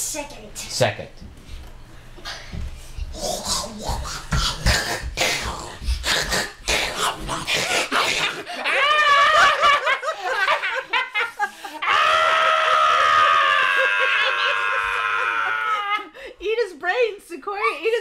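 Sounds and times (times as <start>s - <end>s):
man and child laughing: 7.6s - 12.1s, 13.2s - 16.1s.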